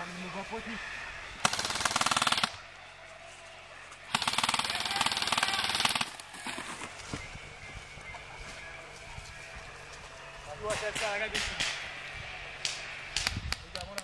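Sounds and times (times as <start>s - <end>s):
airsoft rifle bursts: 1.4s - 2.7s, 4.1s - 6.6s.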